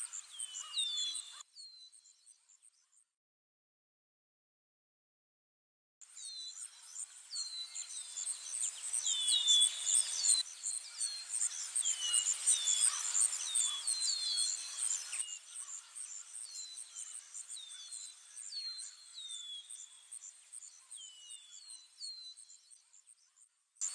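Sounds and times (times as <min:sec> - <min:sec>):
small birds chirping: 0:00.0 - 0:03.1, 0:06.0 - 0:23.9.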